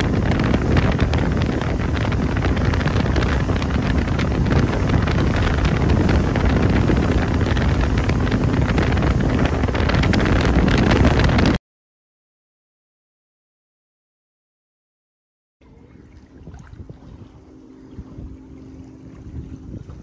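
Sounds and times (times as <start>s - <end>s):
motorboat engine running: 0.0s - 11.6s, 15.6s - 20.0s
wind buffeting microphone: 0.0s - 11.6s, 15.6s - 20.0s.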